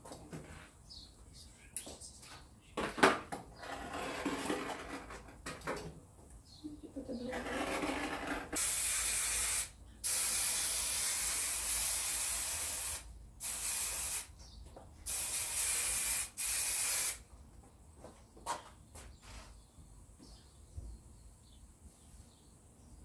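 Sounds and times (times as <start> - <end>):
aerosol spray hissing: 8.6 - 14.3, 15.1 - 17.2.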